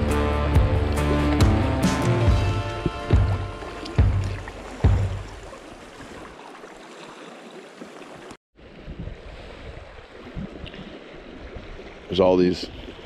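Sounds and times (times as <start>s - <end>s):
background music: 0.0s - 5.2s
river current rushing: 0.1s - 8.8s.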